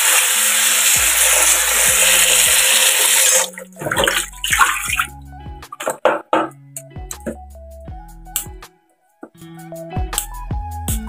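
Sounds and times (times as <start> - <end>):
water pouring into a sink: 0.0 - 5.1
water splashing: 0.0 - 6.1.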